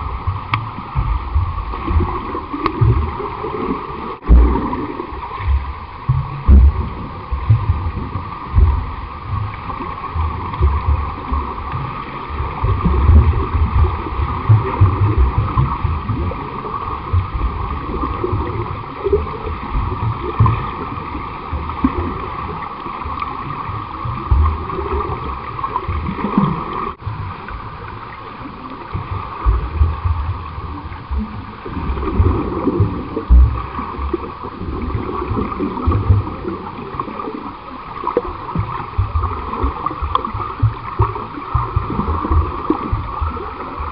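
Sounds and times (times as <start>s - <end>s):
water splashing from swimmers: 0.0s - 43.9s
low thumps: 4.2s - 9.5s.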